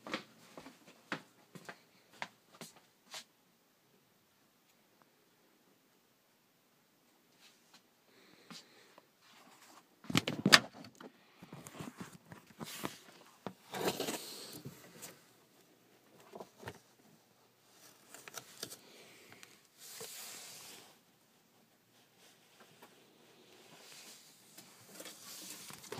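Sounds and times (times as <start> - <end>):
rustling and scraping: 9.2 - 25.9.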